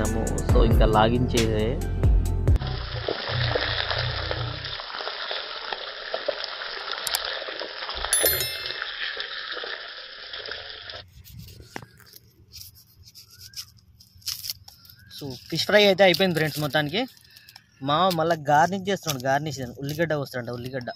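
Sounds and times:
bell-like chime: 8.1s - 9.0s.

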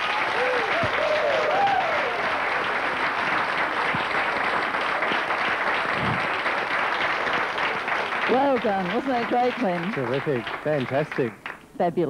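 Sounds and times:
whooping cheers: 0.0s - 3.0s
audience clapping: 0.0s - 11.6s.

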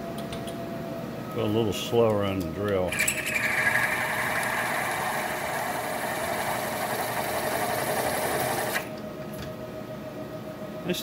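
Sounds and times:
milling machine hum: 2.5s - 10.0s.

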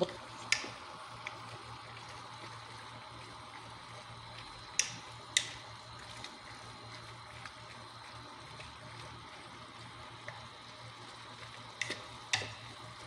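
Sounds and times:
broth bubbling in a pot: 0.0s - 13.0s.

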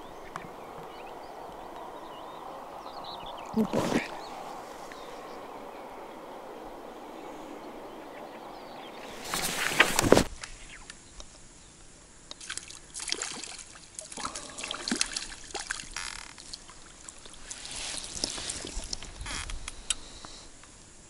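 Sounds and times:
water dripping: 0.0s - 9.1s, 12.3s - 19.1s
loud rush of noise: 0.0s - 10.3s
fish splashing at water surface: 12.4s - 18.9s.

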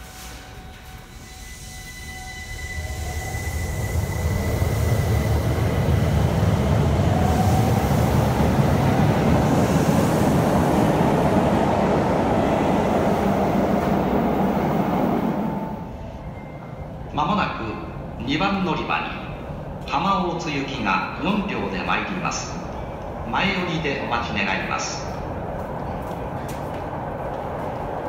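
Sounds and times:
wheels rumbling on rail: 22.4s - 28.0s.

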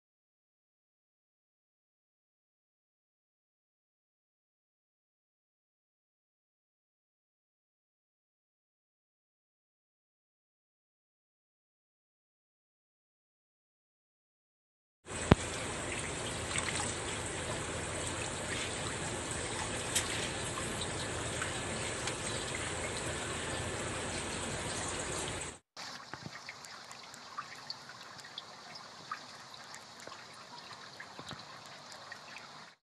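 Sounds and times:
small water splashes: 15.1s - 32.8s
water bubbling in fish tank: 15.1s - 32.8s
water trickling and dripping: 15.1s - 32.8s.

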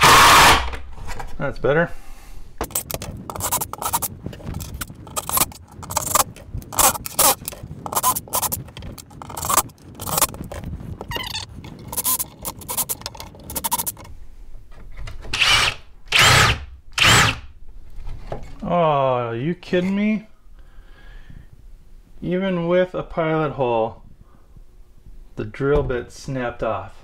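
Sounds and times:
cordless drill drilling wood: 0.0s - 0.7s, 15.4s - 17.4s
scraping and clattering: 2.6s - 14.1s.

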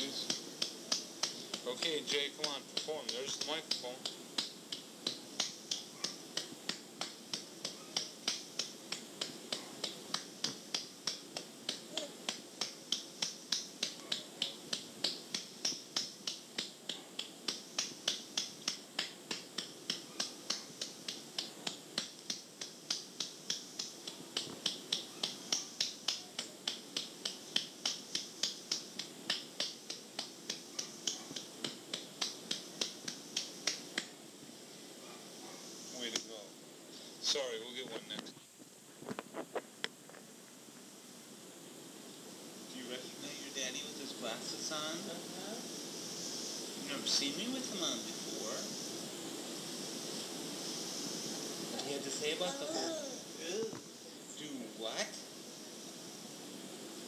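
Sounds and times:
patting baby's back: 0.0s - 34.2s, 49.6s - 54.0s
cassette tape hiss: 0.0s - 57.0s.

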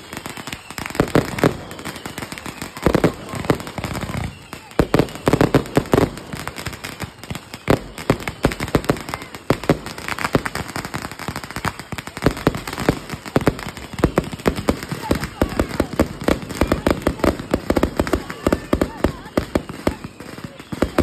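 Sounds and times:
fireworks bangs and pops: 0.0s - 21.0s.

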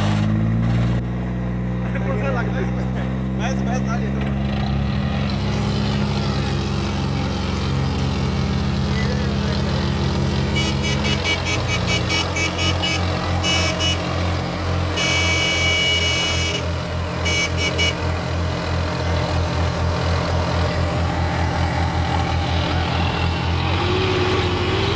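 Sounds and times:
tractor diesel engines under load: 0.0s - 24.9s
short horn toots: 10.5s - 18.2s.

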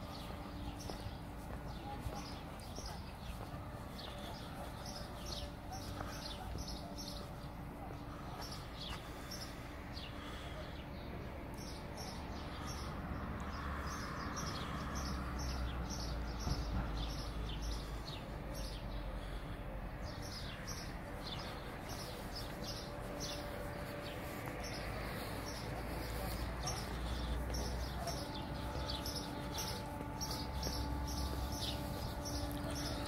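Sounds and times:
small birds chirping: 0.0s - 33.0s
steady low rumble: 14.2s - 33.0s.

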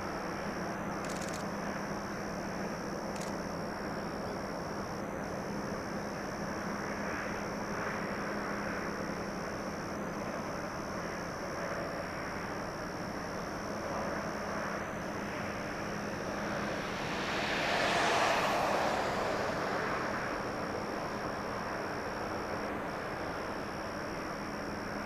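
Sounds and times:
distant locomotive engine drone: 0.0s - 25.0s.

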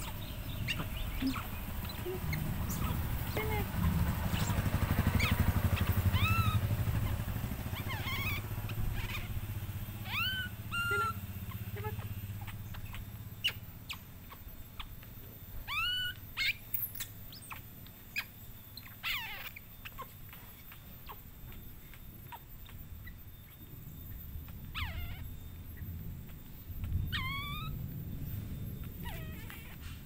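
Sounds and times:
high chirping calls: 0.0s - 27.9s
low motor hum: 0.0s - 30.0s.

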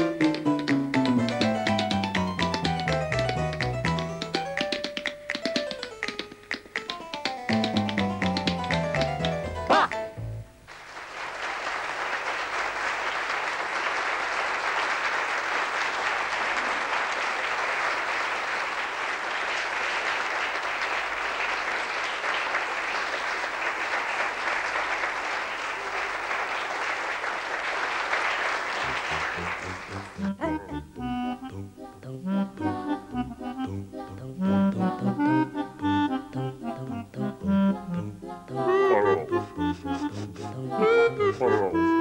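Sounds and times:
audience applauding: 0.1s - 9.9s, 10.7s - 30.4s.

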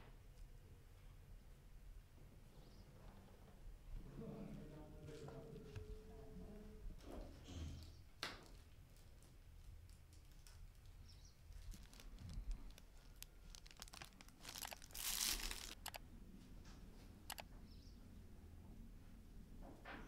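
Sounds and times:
thin plastic crinkling: 8.5s - 16.0s.

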